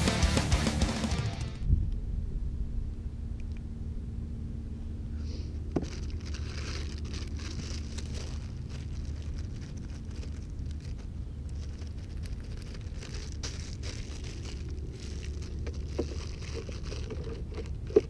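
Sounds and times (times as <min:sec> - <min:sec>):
low rumble: 0:00.0 - 0:18.0
plastic bag crinkling: 0:05.7 - 0:18.0.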